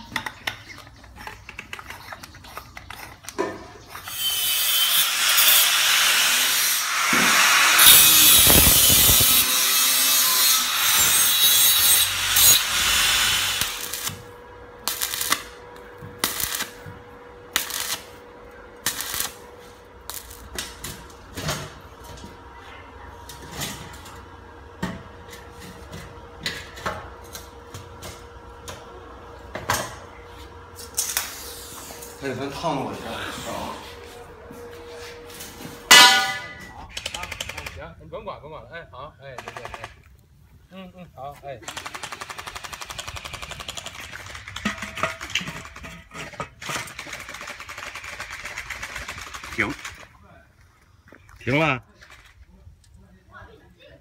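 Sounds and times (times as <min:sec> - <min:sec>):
arc welding crackling: 0:04.0 - 0:21.4, 0:47.0 - 0:50.0.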